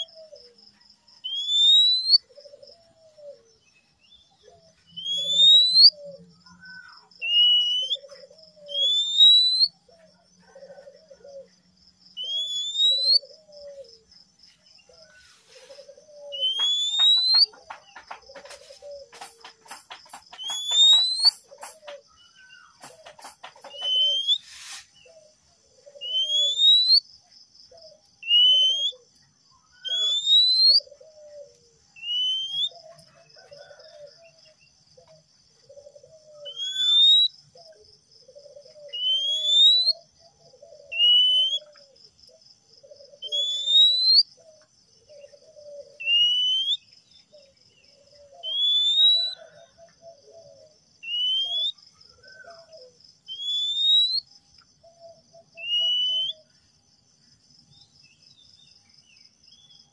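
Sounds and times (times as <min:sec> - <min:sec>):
bird whistling and warbling: 0:01.2 - 0:02.3, 0:04.9 - 0:09.8, 0:12.2 - 0:13.7, 0:16.1 - 0:17.6, 0:18.4 - 0:25.2, 0:26.0 - 0:27.0, 0:28.2 - 0:29.0, 0:29.8 - 0:30.9, 0:32.0 - 0:32.8, 0:36.4 - 0:37.3, 0:38.7 - 0:40.1, 0:40.8 - 0:41.8, 0:43.2 - 0:44.3, 0:45.5 - 0:46.8, 0:48.4 - 0:49.6, 0:51.0 - 0:52.7, 0:53.3 - 0:54.3, 0:55.5 - 0:56.5
rapid bird clicks: 0:16.5 - 0:22.0.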